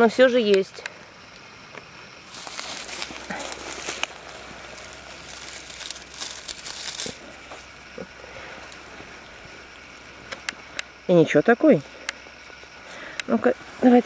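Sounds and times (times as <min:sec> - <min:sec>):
dry leaf litter rustling: 0:02.2 - 0:10.3.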